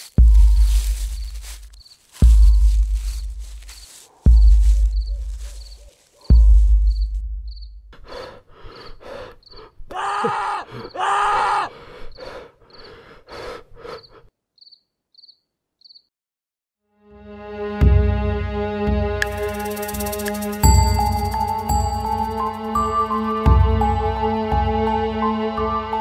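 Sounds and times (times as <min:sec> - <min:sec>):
soft beats: 0:00.0 - 0:07.8, 0:19.2 - 0:24.0
crickets chirping: 0:00.1 - 0:16.1, 0:19.2 - 0:23.4.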